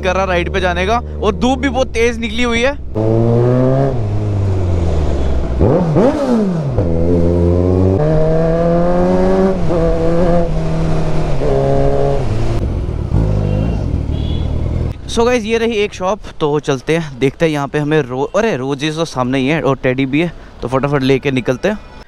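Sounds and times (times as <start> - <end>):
motorcycle engine revving: 2.8 - 15.1.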